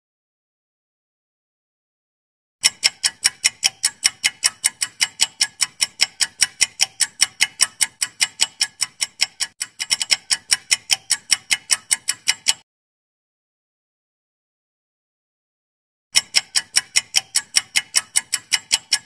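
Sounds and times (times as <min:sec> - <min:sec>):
clock ticking fast: 0:02.6 - 0:12.6, 0:16.1 - 0:19.0.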